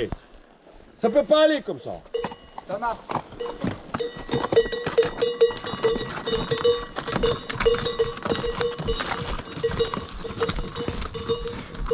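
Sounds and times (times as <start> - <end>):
animal bell ringing: 2.1 - 2.6, 3.4 - 11.9
hoofbeats on stone: 2.2 - 11.9.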